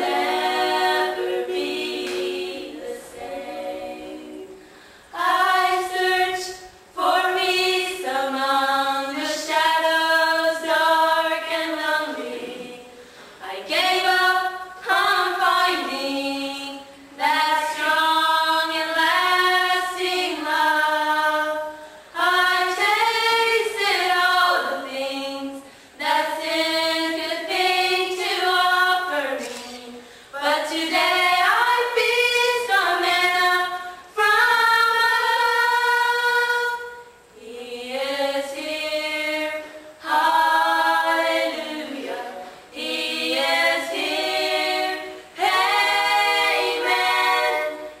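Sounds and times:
girls singing a cappella: 0:00.0 - 0:48.0.

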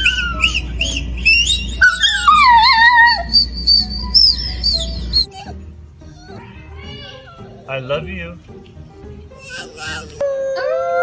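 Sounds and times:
dog howling: 0:00.0 - 0:06.8, 0:09.5 - 0:11.0
dog whining and yipping: 0:00.0 - 0:07.7, 0:09.4 - 0:11.0.

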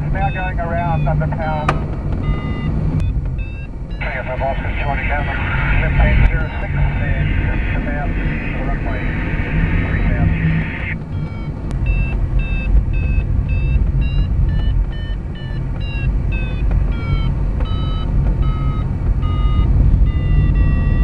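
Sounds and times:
variometer beeping: 0:00.0 - 0:21.0
rushing airflow: 0:04.0 - 0:14.4.

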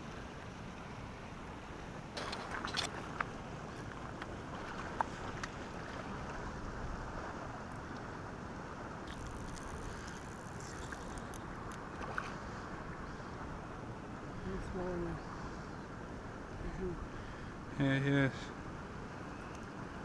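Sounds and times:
faint clicks: 0:19.4 - 0:19.8.

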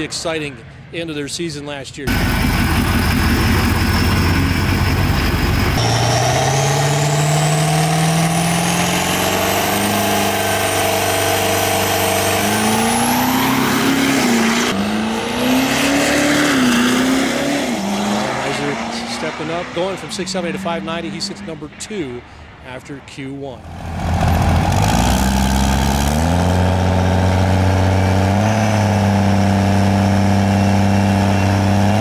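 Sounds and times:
diesel engine running hard: 0:02.1 - 0:22.6, 0:23.6 - 0:32.0
turbo whistle rising: 0:05.8 - 0:21.5.

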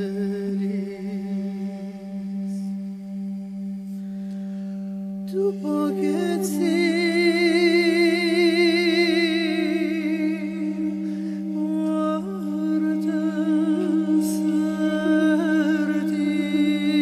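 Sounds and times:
woman singing with vibrato: 0:05.3 - 0:17.0.

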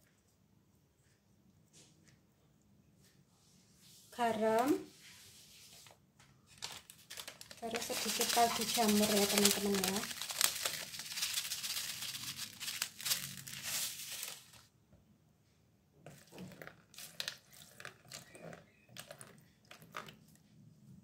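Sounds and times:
plastic packet crinkling: 0:06.5 - 0:14.7, 0:16.6 - 0:18.4.

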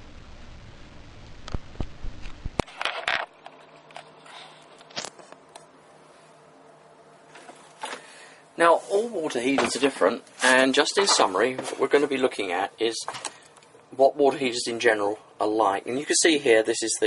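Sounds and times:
low rumble: 0:00.0 - 0:02.6
faint steady hum: 0:00.0 - 0:17.0.

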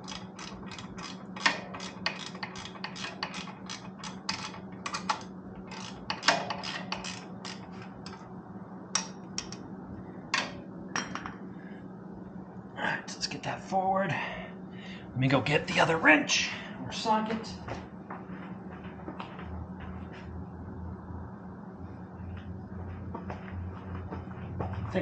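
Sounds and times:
ratchet wrench clicking: 0:00.0 - 0:08.2
steady low hum: 0:00.0 - 0:25.0.

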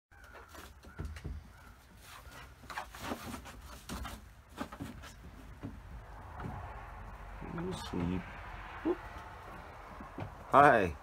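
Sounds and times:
scratching: 0:00.1 - 0:10.5.

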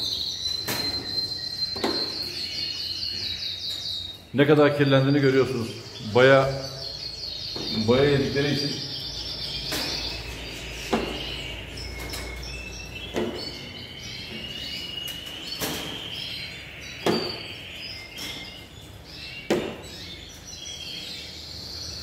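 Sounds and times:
canaries chirping and trilling: 0:00.0 - 0:22.0.

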